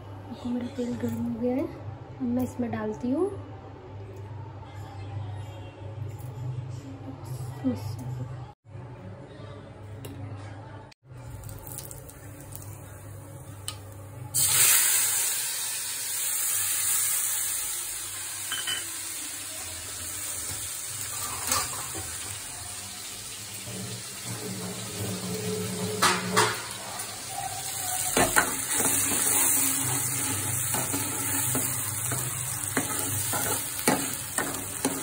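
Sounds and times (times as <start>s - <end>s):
paste sizzling in hot oil: 14.4s - 25.5s, 26.7s - 35.0s.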